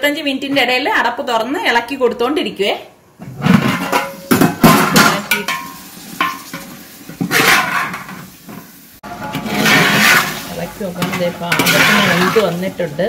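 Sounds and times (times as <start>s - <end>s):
metal spoon clinking on copper pot: 5.1s - 6.6s, 11.0s - 12.5s
spoon scraping pot: 5.3s - 13.0s.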